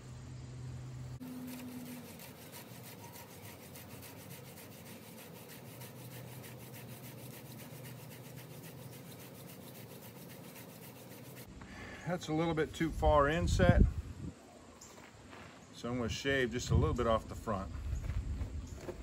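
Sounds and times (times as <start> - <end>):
hand drill rasping on wood: 1.2 - 11.5.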